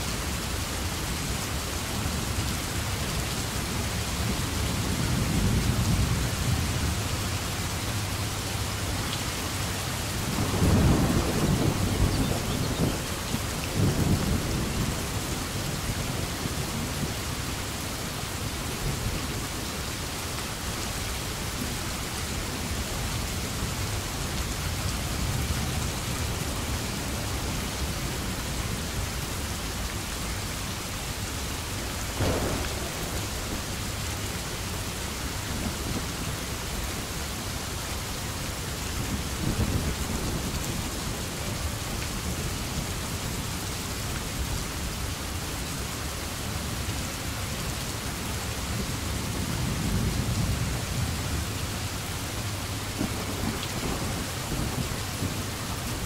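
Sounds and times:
steady rain: 0:00.0 - 0:56.0
thunder rumbling: 0:09.8 - 0:17.6, 0:32.1 - 0:37.1, 0:52.8 - 0:56.0.

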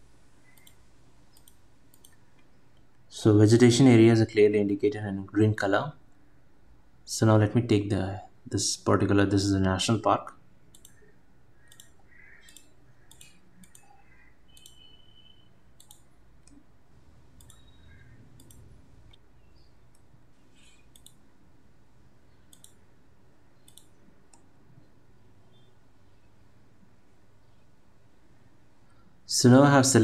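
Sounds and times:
low steady background hiss: 0:00.0 - 0:30.0
computer mouse clicking: 0:00.4 - 0:02.9, 0:10.7 - 0:16.6, 0:17.3 - 0:19.3, 0:19.9 - 0:21.2, 0:22.5 - 0:22.8, 0:23.6 - 0:24.5.

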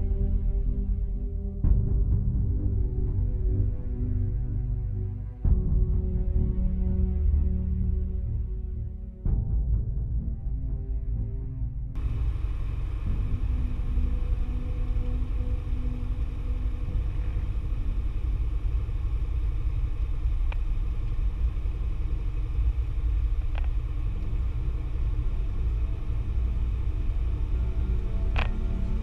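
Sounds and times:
light aircraft engine and propeller: 0:12.0 - 0:29.0.

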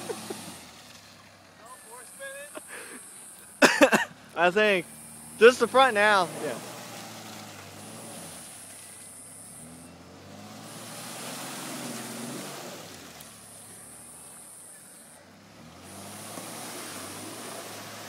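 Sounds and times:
engine revving: 0:00.0 - 0:01.0, 0:04.4 - 0:14.6, 0:15.3 - 0:18.0
wheels churning in mud: 0:00.0 - 0:18.0.

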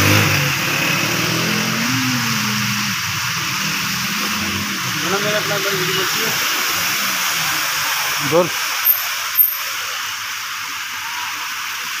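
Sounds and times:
small motorcycle engine: 0:00.0 - 0:09.9
rain and running water: 0:00.0 - 0:12.0.

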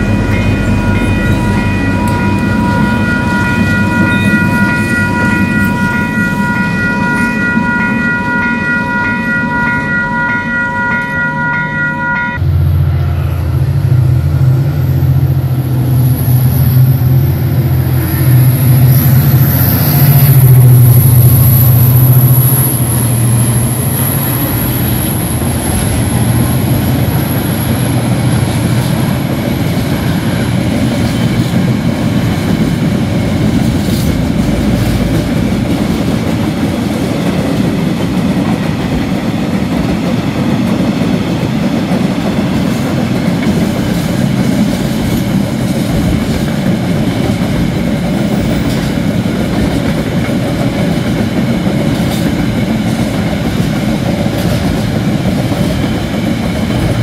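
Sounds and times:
diesel locomotive engine drone: 0:00.0 - 0:57.0
train wagons rolling over rails: 0:12.5 - 0:57.0.

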